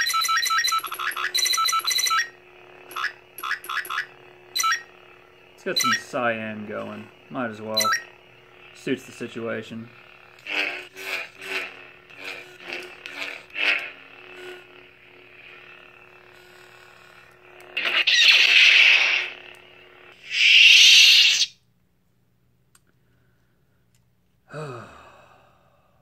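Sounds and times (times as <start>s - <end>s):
lightsaber hum: 0.0s - 21.6s
loud hissing bursts: 20.2s - 21.5s.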